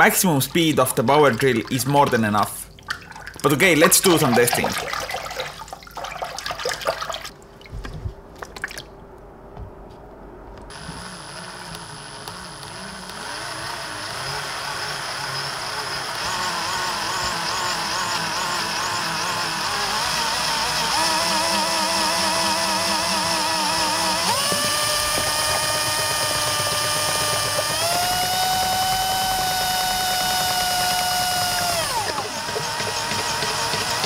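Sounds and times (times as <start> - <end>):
water splashing: 1.0 - 9.0
power drill running: 10.7 - 34.0.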